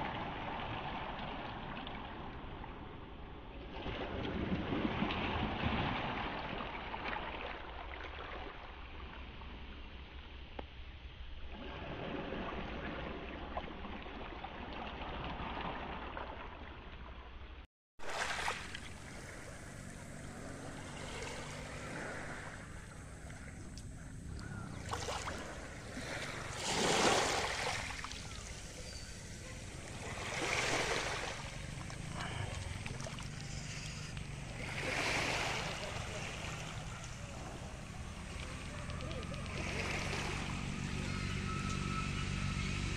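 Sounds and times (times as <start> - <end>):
waves washing onto pebbles: 24.8 - 38.3.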